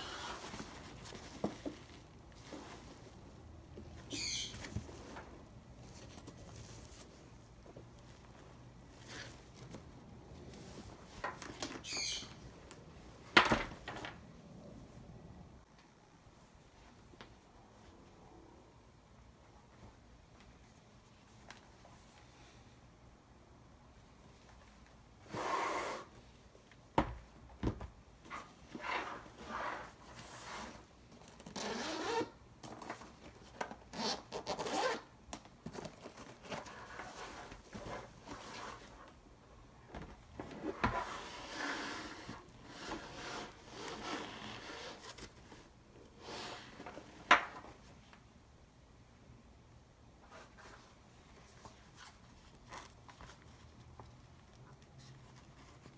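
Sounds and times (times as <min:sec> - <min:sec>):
zipper rasp: 0:31.5 - 0:32.4, 0:33.9 - 0:35.1, 0:41.0 - 0:45.3, 0:46.2 - 0:47.0.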